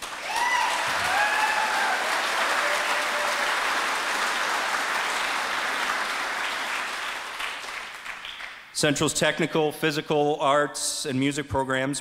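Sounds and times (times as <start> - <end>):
voice-like cheer: 0.0 - 4.0
audience applauding: 0.0 - 8.6.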